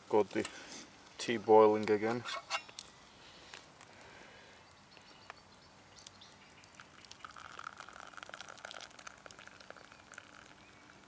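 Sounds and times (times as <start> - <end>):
tea pouring into a cup: 6.0 - 11.0.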